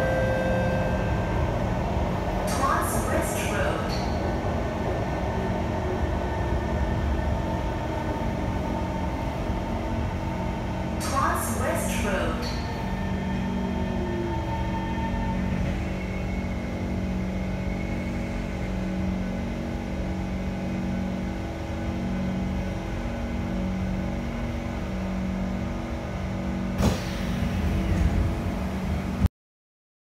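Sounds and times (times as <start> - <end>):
electric train humming: 0.0 - 29.3
sharp clunk: 26.8 - 27.2
train doors hissing open: 26.8 - 28.2.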